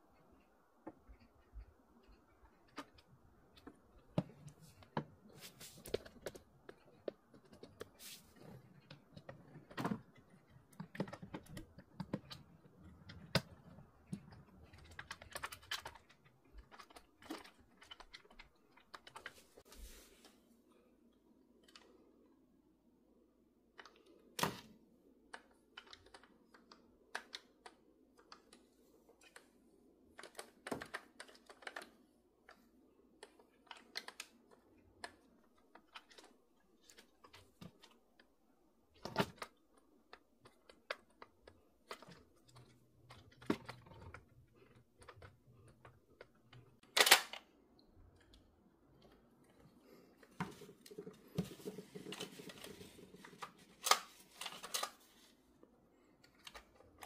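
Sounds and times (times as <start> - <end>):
paper tissue rustling: 5.3 - 6.0, 8.0 - 8.4.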